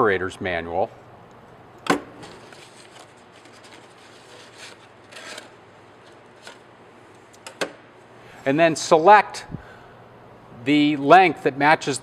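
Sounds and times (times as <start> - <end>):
paper tape rustling and scraping: 2.2 - 6.7.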